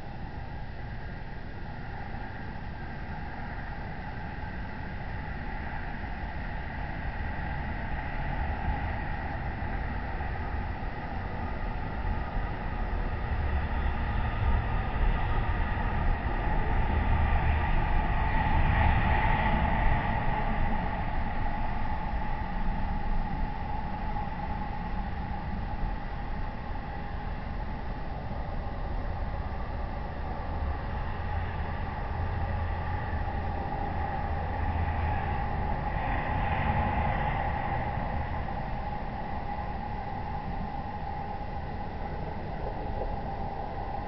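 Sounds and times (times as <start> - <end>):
faint steady tones: 0.0 - 44.0
outdoor low rumble and hiss: 0.0 - 44.0.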